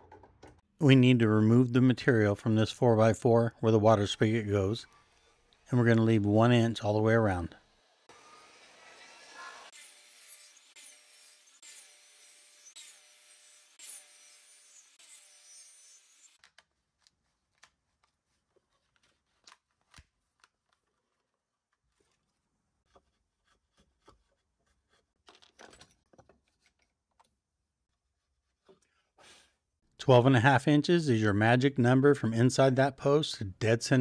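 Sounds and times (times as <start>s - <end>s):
table saw cutting wood: 7.2s - 16.4s.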